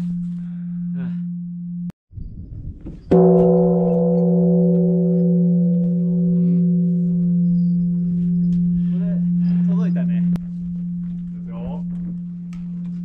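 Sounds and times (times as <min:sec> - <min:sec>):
temple bell ringing: 0:03.1 - 0:13.0.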